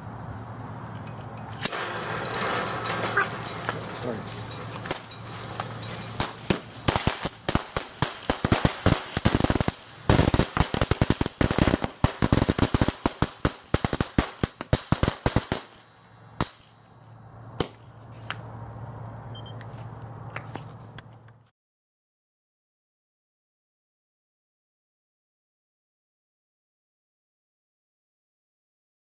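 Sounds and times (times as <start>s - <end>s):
firework crackling and popping: 1.6s - 16.8s.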